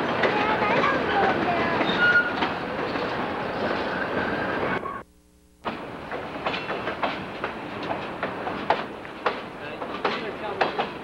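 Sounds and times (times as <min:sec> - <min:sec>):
train wheels clacking over rail joints: 0:00.0 - 0:03.3, 0:05.7 - 0:11.0.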